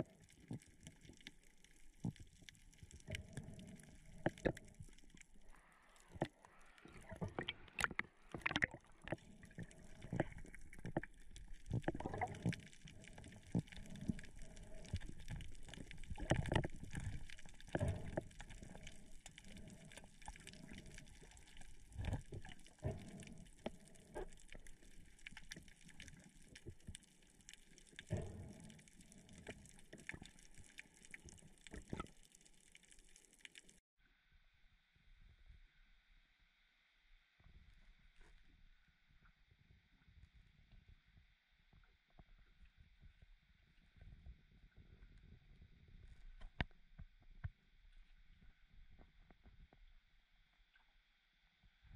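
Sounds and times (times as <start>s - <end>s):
water sloshing and gurgling: 0.0s - 33.8s.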